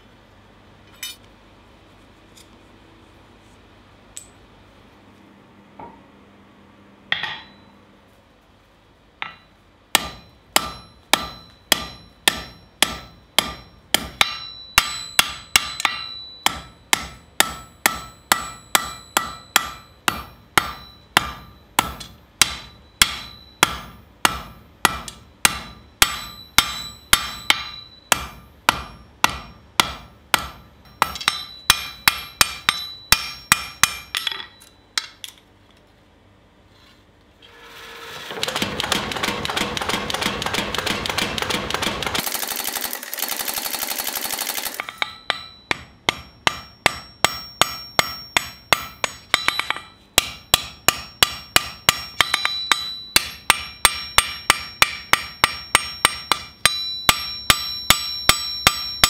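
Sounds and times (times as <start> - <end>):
hammer beating on anvil: 7.1 - 7.7, 9.2 - 35.3, 38.4 - 42.3, 44.6 - 59.0
anvil ringing: 7.1 - 7.8, 9.2 - 35.3, 44.3 - 59.0.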